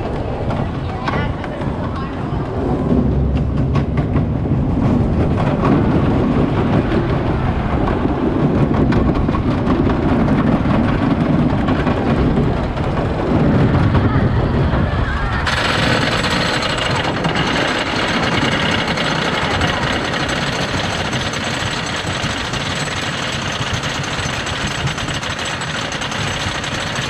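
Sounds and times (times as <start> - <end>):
roller coaster wheels rumbling: 0.0 - 27.0
lift chain rattling: 15.4 - 27.0.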